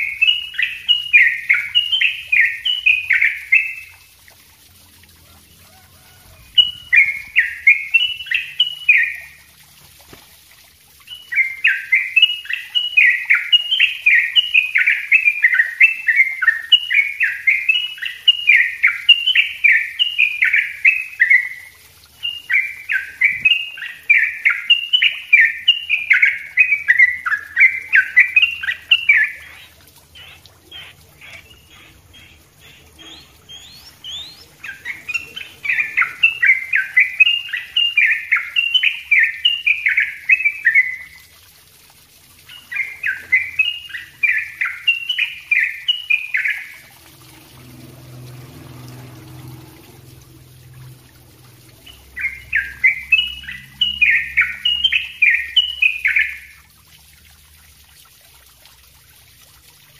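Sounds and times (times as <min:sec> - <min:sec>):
bird chattering song: 0:00.0 - 0:04.0, 0:06.5 - 0:09.4, 0:11.0 - 0:41.2, 0:42.5 - 0:46.9, 0:51.7 - 0:56.6.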